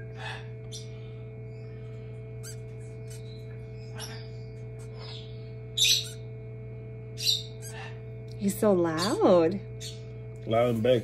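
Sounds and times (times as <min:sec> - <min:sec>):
bird chick high-pitched peeps: 0:00.0 - 0:06.3, 0:07.2 - 0:08.0
steady low hum: 0:00.0 - 0:11.0.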